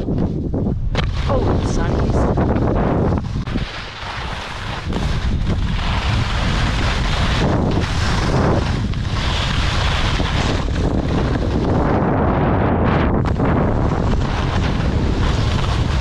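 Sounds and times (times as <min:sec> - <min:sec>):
wind buffeting microphone: 0:00.0 - 0:16.0
skis hissing over snow: 0:03.0 - 0:11.7, 0:13.8 - 0:16.0.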